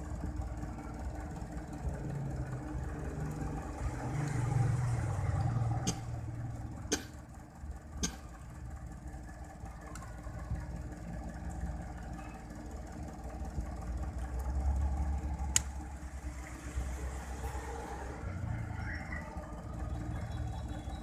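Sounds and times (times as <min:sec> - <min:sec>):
traffic engines rumbling: 0:00.0 - 0:21.0
sharp click: 0:06.9 - 0:07.2.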